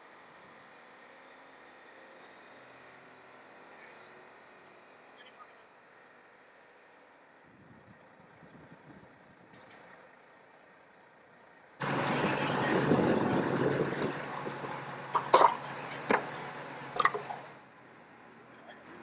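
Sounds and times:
rushing noise: 11.8 - 17.6
truck diesel engine running: 11.8 - 17.7.

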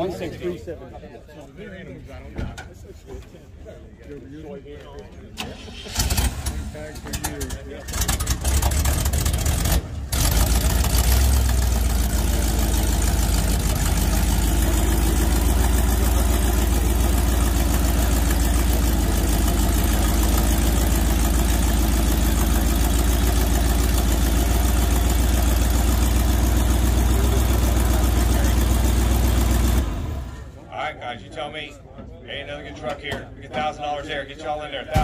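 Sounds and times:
truck engine idling: 5.5 - 30.6.

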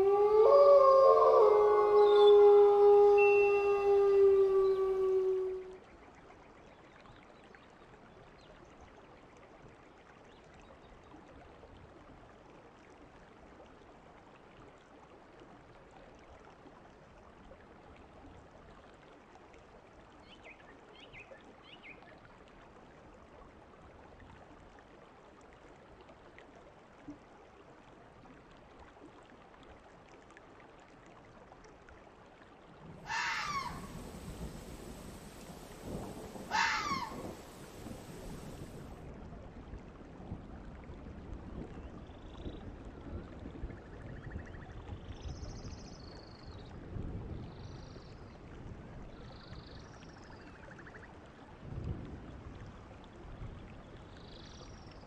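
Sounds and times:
fox screaming: 0.0 - 5.7, 33.0 - 38.3
faint outdoor hiss: 0.0 - 14.7, 30.6 - 48.3.

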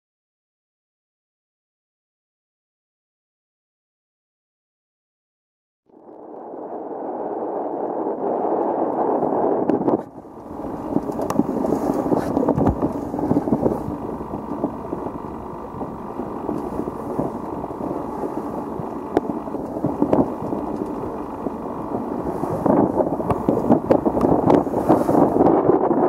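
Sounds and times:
water rushing along hull: 6.0 - 26.0
wind buffeting microphone: 6.0 - 26.0.

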